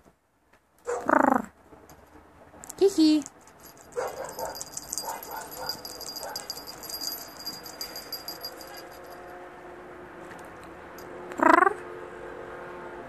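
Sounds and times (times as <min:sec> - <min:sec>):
collar bell jingling: 0:02.7 - 0:09.3.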